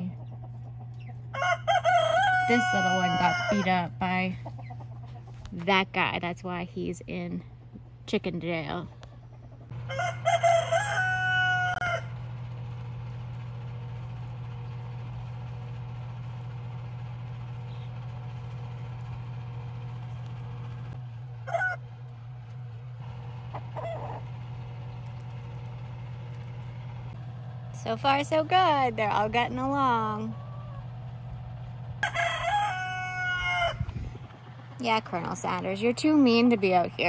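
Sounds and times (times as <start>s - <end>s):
steady low hum: 0.0s - 37.0s
chicken calls: 0.1s - 5.4s, 8.9s - 12.2s, 21.4s - 21.8s, 23.4s - 25.3s, 30.2s - 31.1s, 32.0s - 34.2s
rooster crowing: 1.3s - 3.9s, 9.7s - 12.2s, 21.4s - 21.9s, 23.6s - 24.3s, 30.3s - 31.0s, 32.0s - 34.2s.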